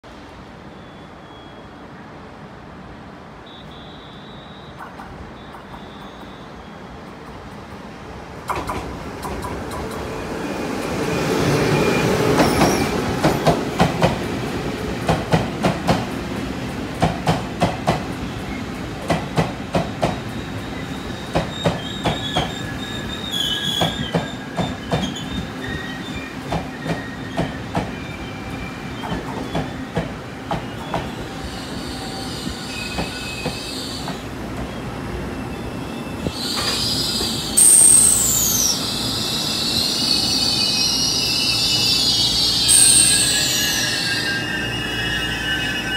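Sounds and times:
falling whistle: 0.7 - 1.8, 3.5 - 6.9, 34.8 - 45.9
train rumble: 4.8 - 45.9
train wheels clicking over rail joints: 8.4 - 10.2, 16.9 - 20.4, 21.2 - 22.7, 23.4 - 25.8, 26.4 - 28.0, 29.0 - 31.2, 36.3 - 37.4
wheel squeal: 20.4 - 29.8, 30.6 - 45.9.

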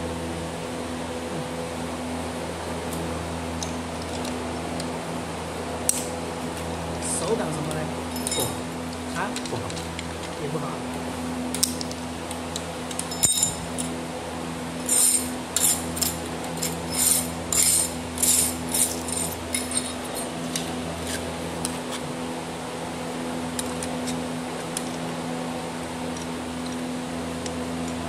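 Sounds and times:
metal clinks from angle grinder: 8.1 - 8.6, 12.9 - 13.9, 14.8 - 20.4.

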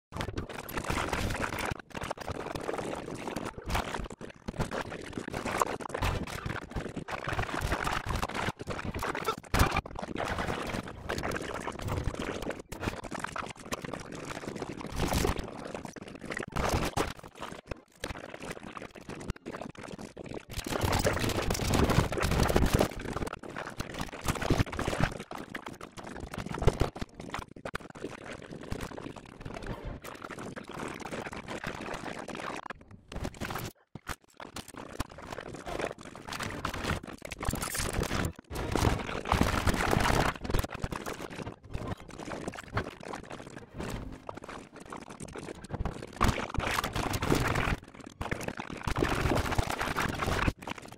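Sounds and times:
dense mix of cartoon sound effects: 6.0 - 13.4, 34.8 - 50.6.

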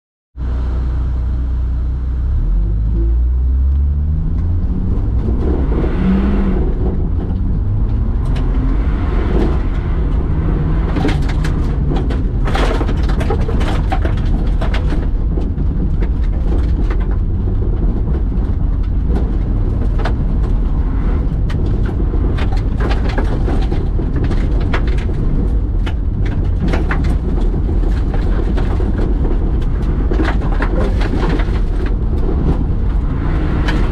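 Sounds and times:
car engine revving: 0.4 - 33.9
stones rattling against car underside: 9.4 - 20.8, 21.4 - 33.9.

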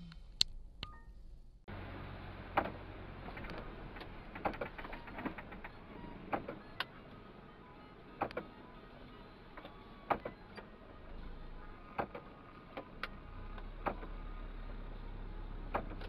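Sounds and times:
engine and road hum: 0.0 - 16.0
sharp clicks: 8.1 - 8.7.

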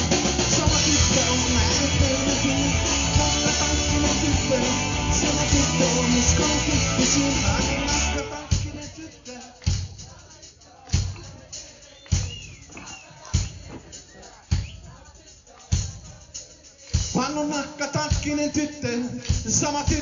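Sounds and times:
live rock band playing: 0.0 - 9.0.

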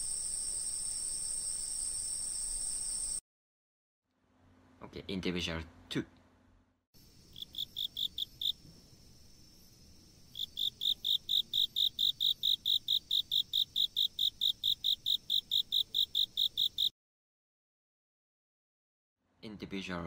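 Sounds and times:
high insect trill: 0.0 - 3.2, 7.0 - 16.9
insect chirping: 0.0 - 3.2, 7.0 - 16.9.

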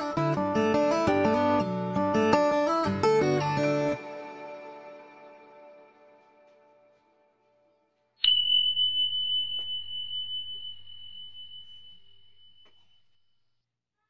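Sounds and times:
guitar music: 0.0 - 7.0
bright chime ringing: 8.2 - 13.1.

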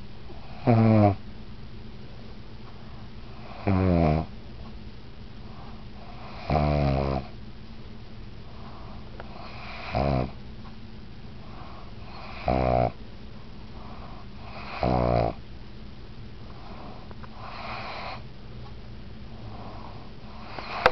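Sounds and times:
dog snoring: 0.3 - 1.2, 3.3 - 4.3, 5.5 - 7.4, 8.6 - 10.4, 11.4 - 13.0, 13.8 - 15.4, 16.6 - 18.2, 19.4 - 20.9.

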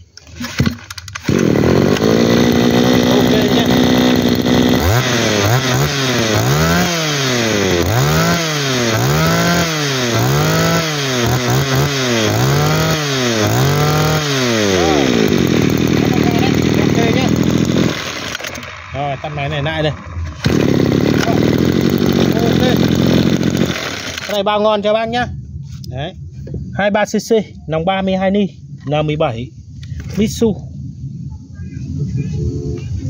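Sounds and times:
brush cutter engine revving: 0.2 - 24.5.

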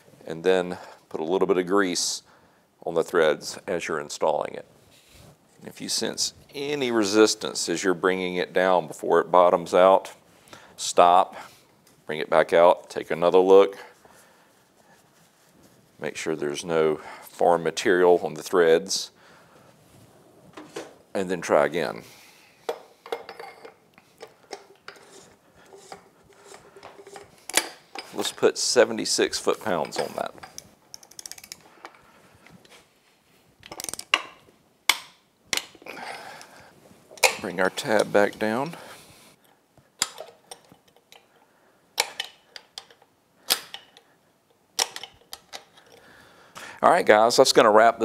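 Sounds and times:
small metal clinks and scraping: 22.6 - 28.8, 29.5 - 32.8, 33.6 - 34.4, 40.0 - 44.2, 44.8 - 46.1.

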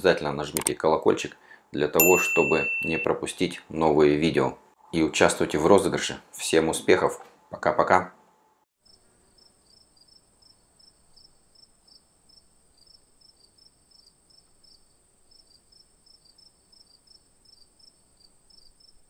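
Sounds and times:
faint insect chirping: 8.8 - 19.0.

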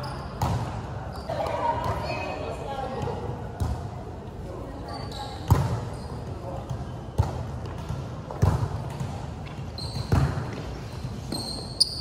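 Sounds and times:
shoes squeaking on court: 0.0 - 2.2, 4.8 - 12.0
volleyball hits echoing: 6.6 - 10.6.

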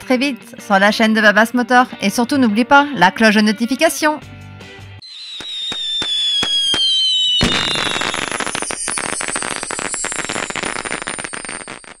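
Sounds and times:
firework bang: 5.0 - 12.0
fireworks crackling: 5.0 - 12.0.

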